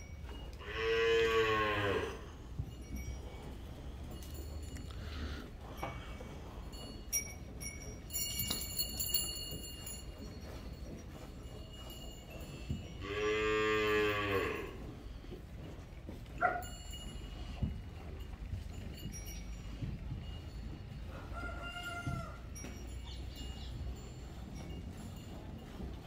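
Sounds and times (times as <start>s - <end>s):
cow mooing: 0.6s - 2.3s, 13.0s - 14.8s.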